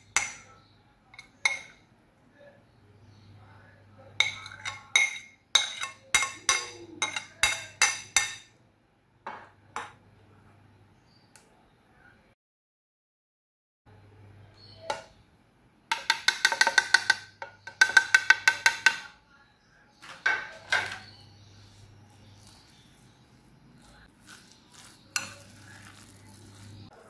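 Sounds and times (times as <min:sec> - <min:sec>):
metal spoon clinking on glass bowl: 0:00.0 - 0:01.8, 0:04.2 - 0:08.5
spoon scraping while stirring: 0:04.2 - 0:08.5, 0:20.5 - 0:27.0.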